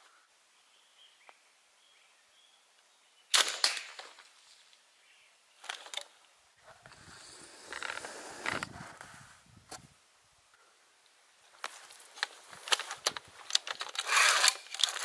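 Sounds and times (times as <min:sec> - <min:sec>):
rustling with low rumble: 0:06.6 - 0:10.0.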